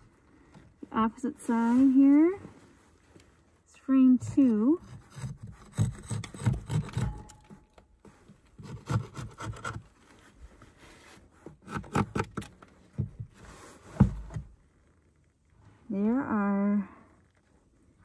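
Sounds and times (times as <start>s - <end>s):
metal tool scraping wood: 4.8s - 10.0s, 11.4s - 12.6s.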